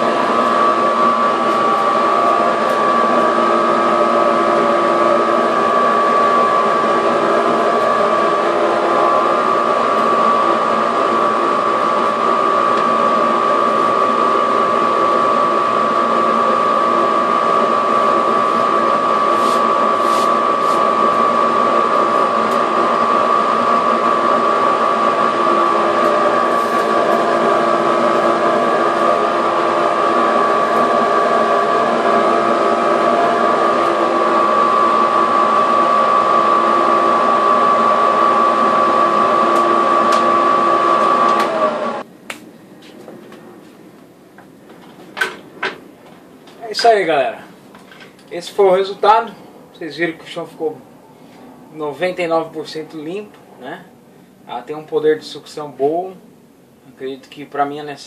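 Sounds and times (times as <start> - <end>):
dust collector whining: 0.0 - 43.5, 44.4 - 53.9
rushing air through hose: 19.3 - 20.9.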